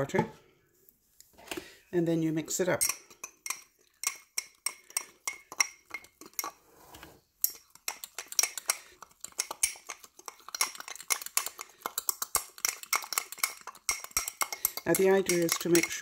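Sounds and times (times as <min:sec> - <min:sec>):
fork clinking against glass jar: 0:02.7 - 0:06.6, 0:07.4 - 0:16.0.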